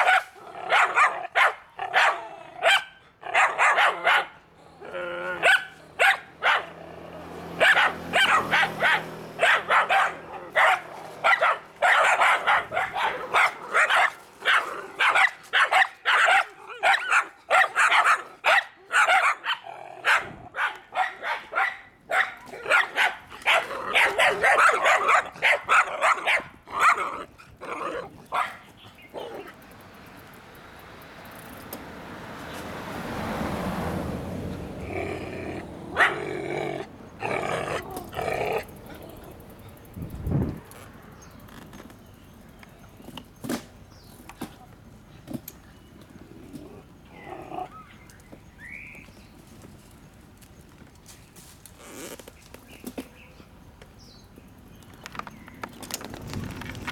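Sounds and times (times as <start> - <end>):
dogs barking: 0.0 - 4.5, 5.4 - 29.5, 35.2 - 39.4.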